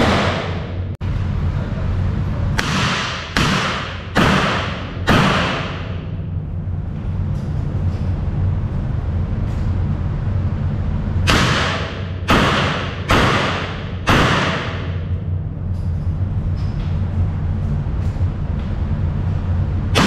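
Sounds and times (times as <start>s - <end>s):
revolver shots reverberating indoors: 0.0s - 1.2s, 2.4s - 8.3s, 11.0s - 18.4s, 19.8s - 20.0s
steady low hum: 0.0s - 20.0s.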